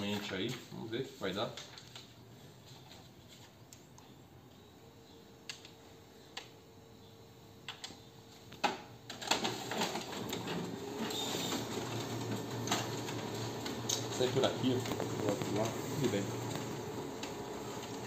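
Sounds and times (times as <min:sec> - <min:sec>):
copier clicks: 0:07.6 - 0:18.0
copier paper feed rapid clicking: 0:09.1 - 0:18.0.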